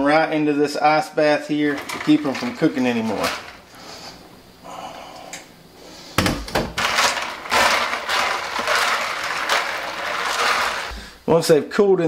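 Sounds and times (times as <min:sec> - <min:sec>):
hand stirring peas in ice water: 0:01.7 - 0:03.6, 0:06.8 - 0:11.1
ice and peas clicking: 0:06.8 - 0:10.9.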